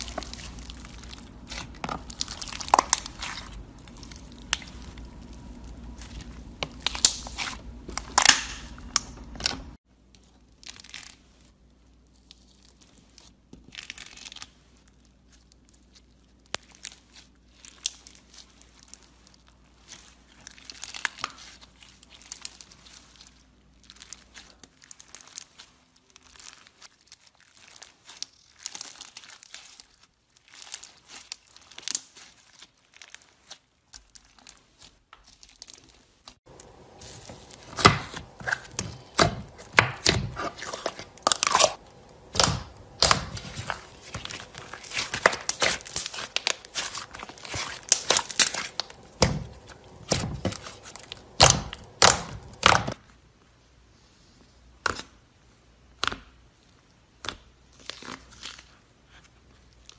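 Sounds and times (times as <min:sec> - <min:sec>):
slime crackling and popping: 0:00.0 - 0:09.8, 0:10.5 - 0:53.0.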